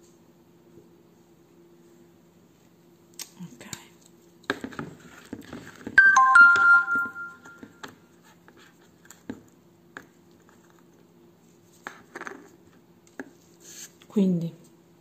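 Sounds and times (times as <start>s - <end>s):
electronic chime beeps: 6.0s - 7.8s.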